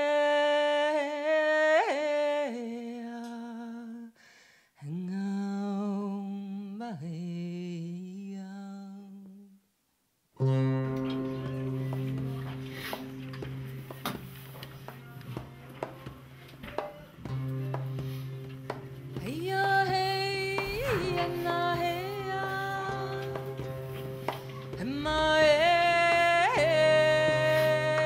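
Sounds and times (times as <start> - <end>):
music on a steady low note: 10.4 - 16.6
person humming long notes: 19.4 - 23.8.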